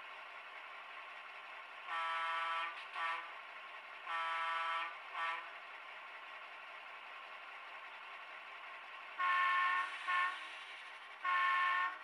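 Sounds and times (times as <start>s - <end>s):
model train horn blasts: 1.9s - 3.3s, 4.0s - 5.5s, 9.2s - 10.6s, 11.2s - 12.0s.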